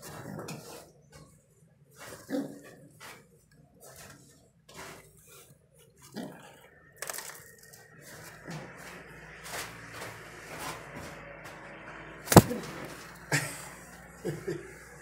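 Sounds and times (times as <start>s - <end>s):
wing slap: 12.3s - 12.9s
feathers and nest rustling: 12.3s - 13.1s.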